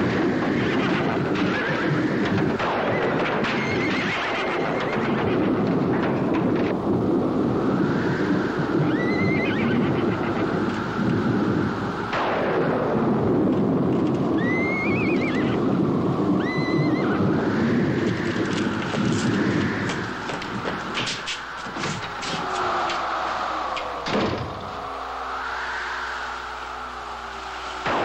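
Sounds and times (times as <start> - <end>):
dense steady rumble: 0.0 - 28.0
horses neighing: 2.9 - 5.4, 8.9 - 10.8, 16.3 - 17.3, 19.2 - 24.8
sudden crack: 18.4 - 24.8.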